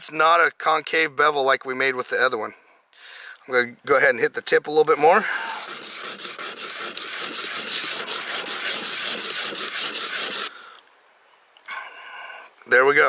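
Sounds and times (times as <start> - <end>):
blade scraping on sharpening plate: 5.4 - 10.5.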